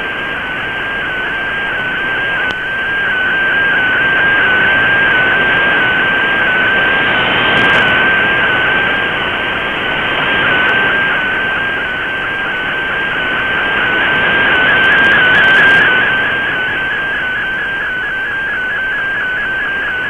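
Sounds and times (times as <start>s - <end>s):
shortwave static hiss: 0.0s - 20.0s
steady digital data tone: 11.6s - 20.0s.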